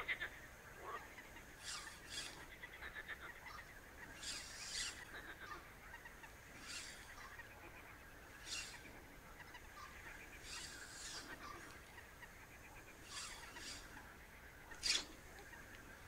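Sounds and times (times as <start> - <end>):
short high animal calls: 1.6 - 2.5
soft rattling trill: 1.6 - 2.5, 4.0 - 5.1, 6.5 - 16.0.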